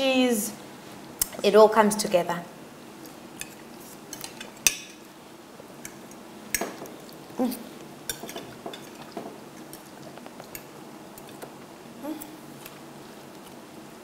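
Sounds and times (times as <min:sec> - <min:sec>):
cutlery clinking on plates: 0:08.1 - 0:09.4.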